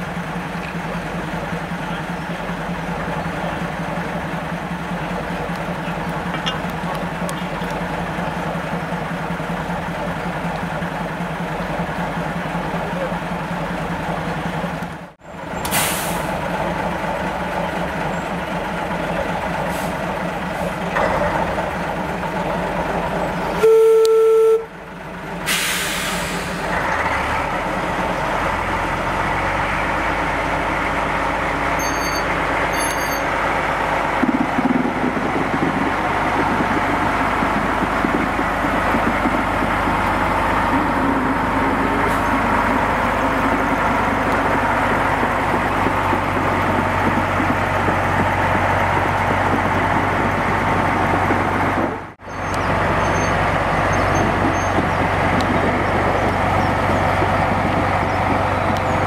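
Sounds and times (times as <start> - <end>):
diesel locomotive engine drone: 0.0 - 59.0
locomotive horn toot: 23.5 - 24.8.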